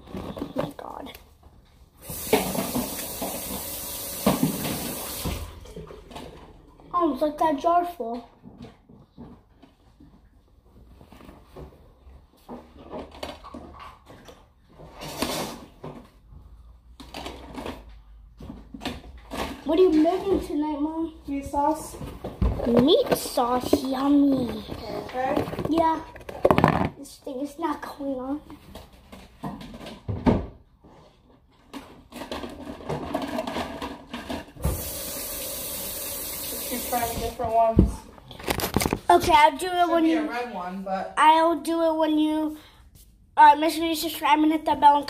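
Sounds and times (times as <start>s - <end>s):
faint household background noise: 0.0s - 45.0s
plastic containers knocking and clicking: 22.0s - 27.0s, 31.6s - 34.8s.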